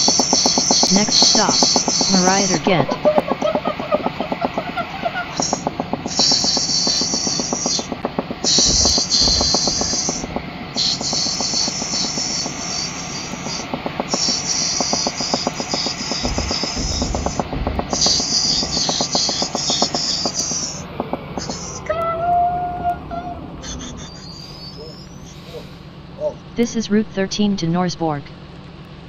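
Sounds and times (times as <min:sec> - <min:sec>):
loud high hiss: 0:00.0 - 0:03.2, 0:04.4 - 0:21.9
train running with fast rattle: 0:00.0 - 0:26.6.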